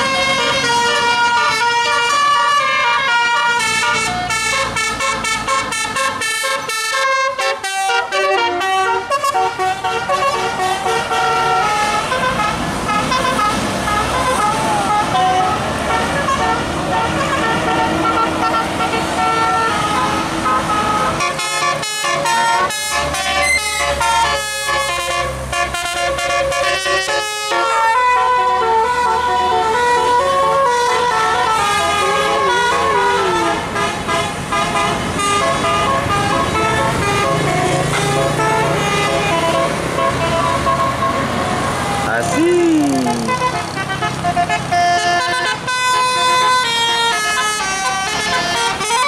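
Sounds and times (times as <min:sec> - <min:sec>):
musical air horns playing a tune: 0:00.0 - 0:49.0.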